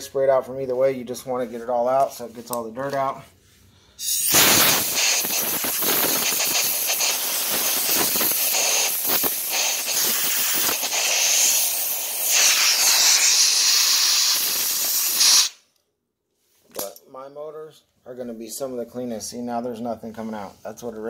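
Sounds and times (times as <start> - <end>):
compressed air blow gun hissing: 4.0 - 15.6.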